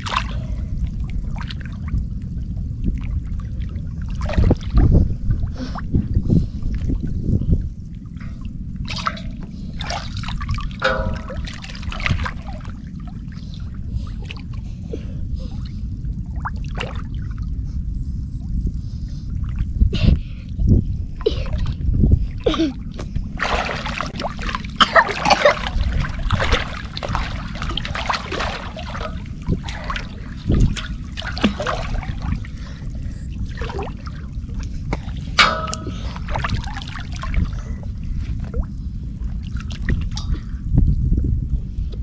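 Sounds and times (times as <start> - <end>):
river water splashing and sloshing: 0.0 - 5.0, 7.9 - 14.7, 15.6 - 17.4, 22.4 - 40.6
steady low rumble: 0.0 - 42.0.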